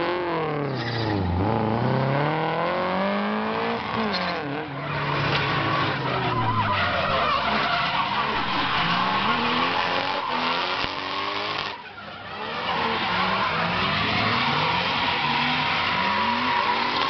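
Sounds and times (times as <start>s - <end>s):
car engines revving: 0.0s - 17.0s
tyres screeching: 3.9s - 11.6s.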